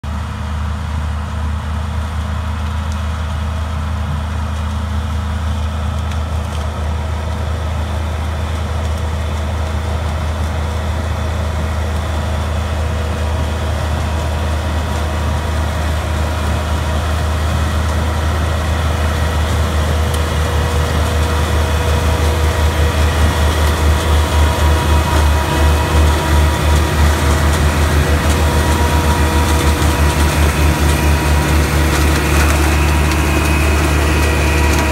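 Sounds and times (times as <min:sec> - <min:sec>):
harvester engine drone: 0:00.0 - 0:34.9.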